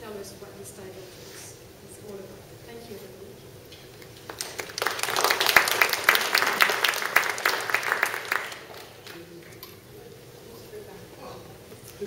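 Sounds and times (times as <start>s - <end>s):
audience applauding: 4.3s - 9.3s.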